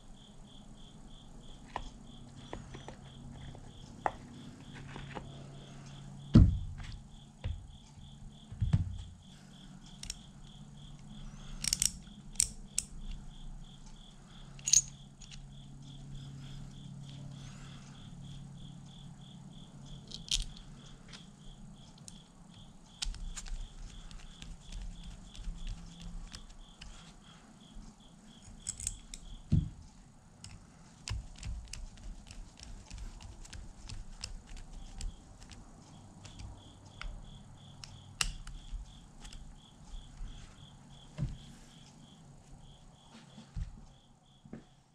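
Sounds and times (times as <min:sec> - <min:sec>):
loud thump: 0:06.3 - 0:06.8
light metallic clinks and clicks: 0:14.6 - 0:15.5, 0:28.4 - 0:29.5
faint fast ticking: 0:15.5 - 0:29.5.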